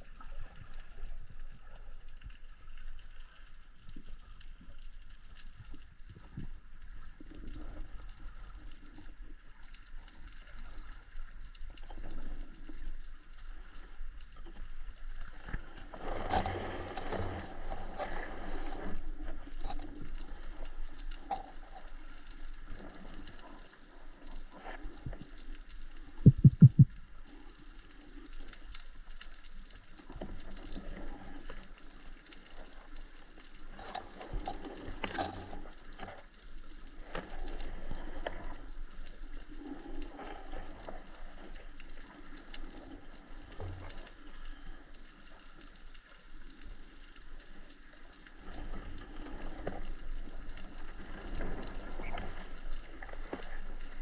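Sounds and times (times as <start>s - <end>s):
clicks and crackles: 0.0s - 54.0s
loud low knocks: 26.3s - 26.9s.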